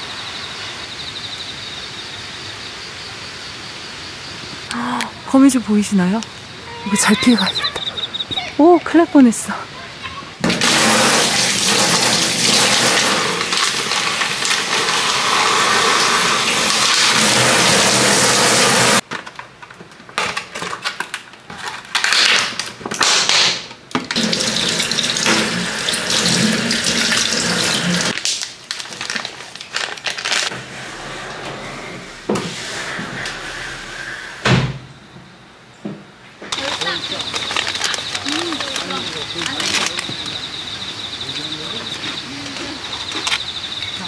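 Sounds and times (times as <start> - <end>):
water gushing: 10.4 - 19.0, 24.2 - 28.2
rustles: 28.2 - 34.5, 36.4 - 40.5.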